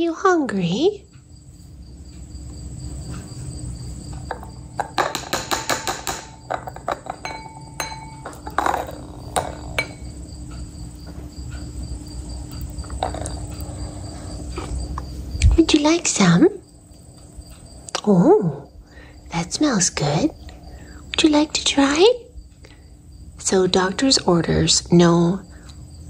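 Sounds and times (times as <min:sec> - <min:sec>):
low steady hum: 0:00.0 - 0:26.0
light clinks on a ceramic dish: 0:04.3 - 0:10.1.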